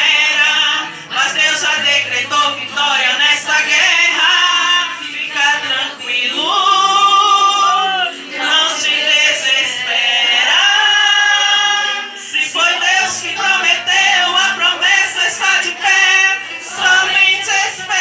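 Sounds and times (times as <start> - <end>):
women singing worship song: 0.0 - 18.0.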